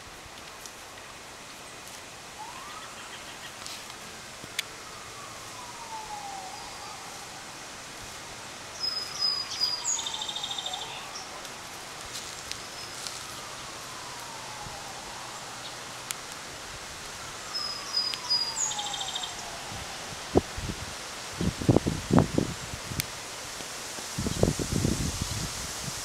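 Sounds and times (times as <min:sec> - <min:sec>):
faint siren wailing: 0:01.8 - 0:22.8
bird chirping: 0:08.7 - 0:11.4, 0:12.5 - 0:14.6, 0:17.5 - 0:19.6.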